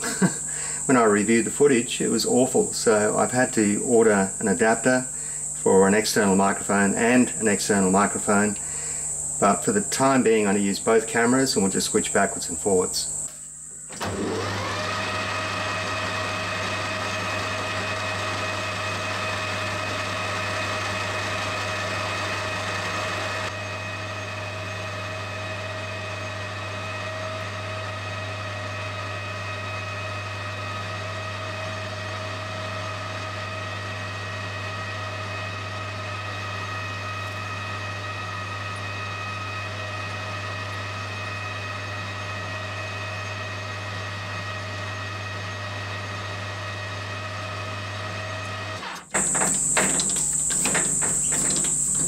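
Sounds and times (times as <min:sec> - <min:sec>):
metal lathe running: 0:14.0 - 0:25.8, 0:47.3 - 0:52.0.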